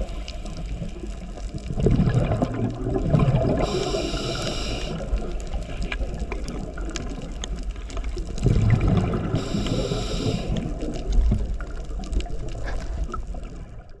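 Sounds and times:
crackling clicks: 0.0 - 14.0
low underwater rumble: 0.0 - 14.0
bubbling exhalation underwater: 1.6 - 5.4, 8.2 - 13.7
hissing inhalation: 3.6 - 5.2, 9.3 - 10.8.

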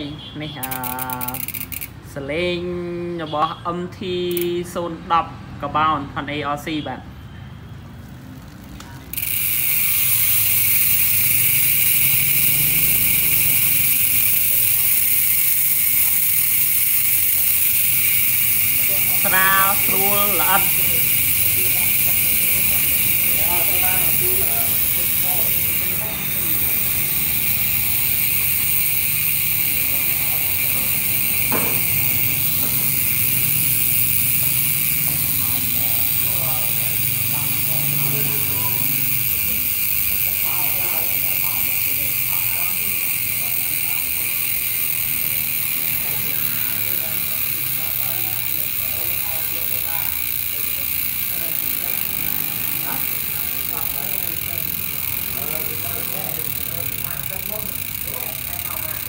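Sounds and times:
bicycle hub freewheeling buzz: 0.0 - 59.0.

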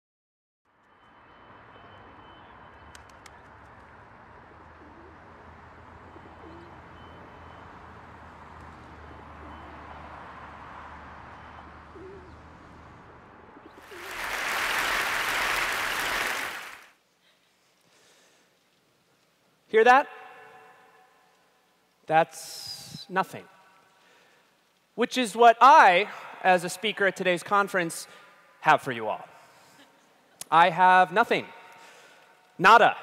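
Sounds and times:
faint background noise: 0.7 - 33.0
audience applause: 13.7 - 17.0.

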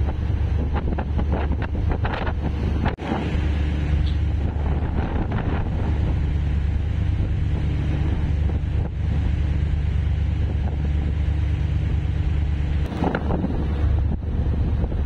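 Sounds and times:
ferry engine drone: 0.0 - 15.0
wake rushing along hull: 0.0 - 15.0
wind buffeting microphone: 0.0 - 15.0.

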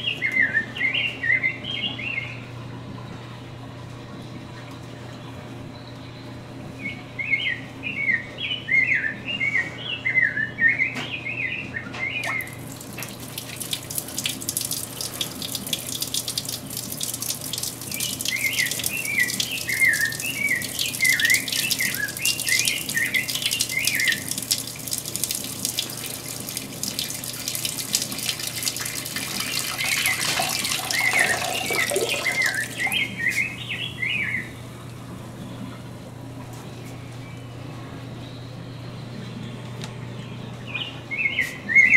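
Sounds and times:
person urinating into toilet: 12.3 - 33.1
bird chirping: 17.9 - 24.3, 29.5 - 34.6.

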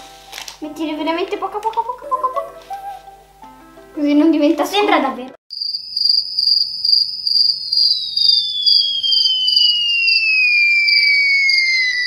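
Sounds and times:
crickets chirping: 5.5 - 12.0
whistle sliding down in pitch: 6.8 - 12.0
faint tone gliding upward: 6.9 - 12.0.

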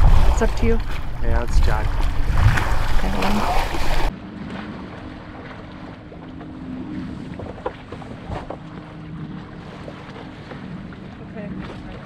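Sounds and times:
wind buffeting microphone: 0.0 - 4.1
rush of wind and water: 0.0 - 12.0.

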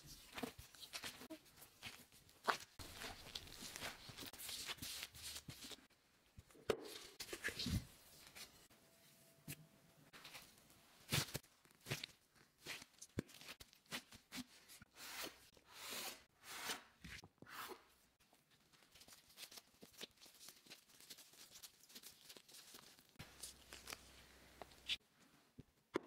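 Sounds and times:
plastic gloves rustling: 0.0 - 5.9, 6.9 - 9.2, 18.2 - 25.0.

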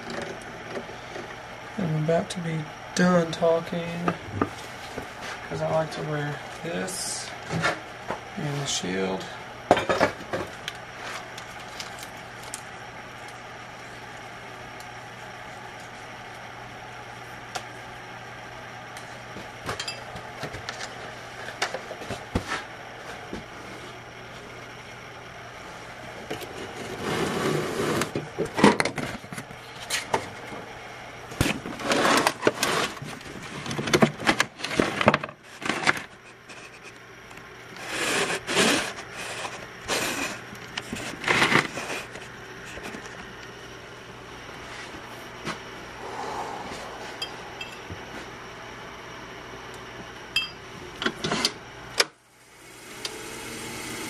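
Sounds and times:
tool cutting spinning wood: 26.5 - 28.8, 31.4 - 33.2, 37.8 - 42.2, 52.6 - 54.0
wood lathe humming: 52.4 - 54.0.

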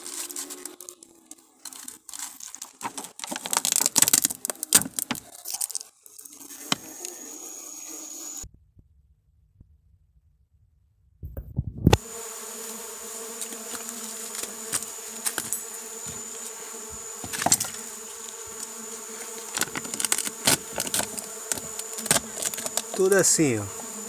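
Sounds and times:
bees buzzing: 0.0 - 8.4, 11.9 - 24.0.

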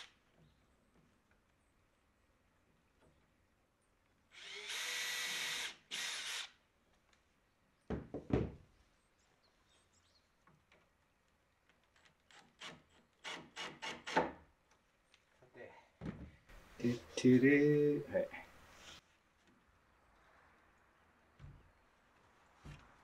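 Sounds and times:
cordless drill driving screw: 4.3 - 6.6.

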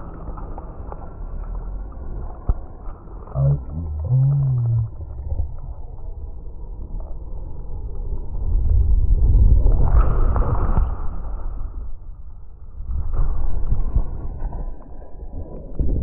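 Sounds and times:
water rumbling and splashing: 0.0 - 16.0
muffled voice: 3.3 - 5.5.

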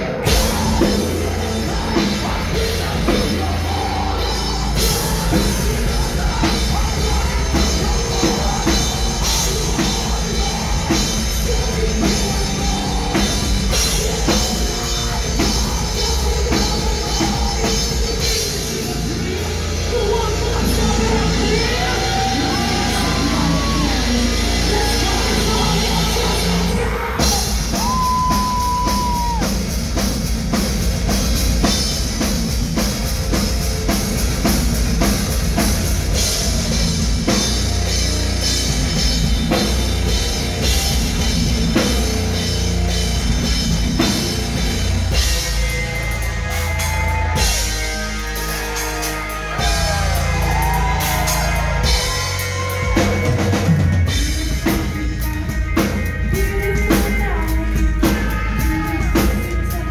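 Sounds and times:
person singing: 0.0 - 30.0, 44.0 - 59.9
metal band playing live: 0.0 - 59.9.

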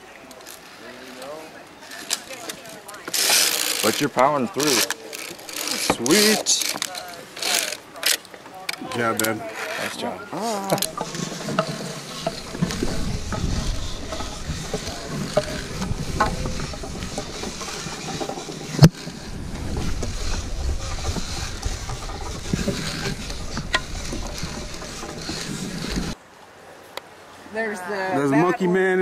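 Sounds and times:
harness gear clicks and knocks: 0.3 - 9.9, 10.6 - 26.2
wind rumbling on microphone: 10.8 - 26.2.

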